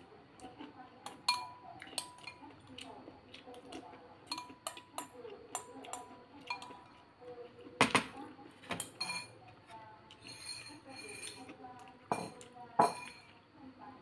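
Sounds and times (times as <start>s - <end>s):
metal spoon clinking on bowl: 1.0s - 2.5s, 4.2s - 6.9s, 8.7s - 9.4s, 10.1s - 11.5s, 12.1s - 13.3s.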